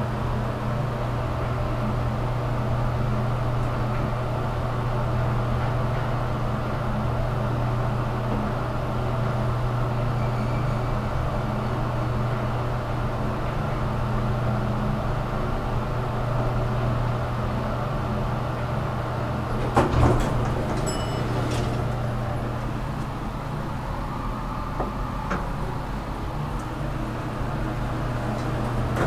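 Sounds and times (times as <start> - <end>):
elevator humming: 0.0 - 29.0
elevator doors sliding open: 1.4 - 29.0
elevator stopping clunk: 19.2 - 29.0.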